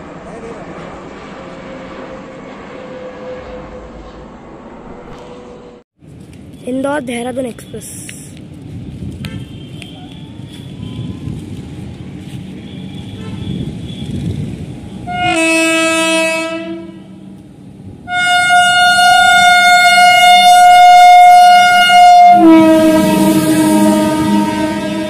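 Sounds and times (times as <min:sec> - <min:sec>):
train rumble: 0:00.0 - 0:25.0
train horn blasts: 0:12.7 - 0:14.1, 0:15.0 - 0:17.4, 0:18.1 - 0:25.0.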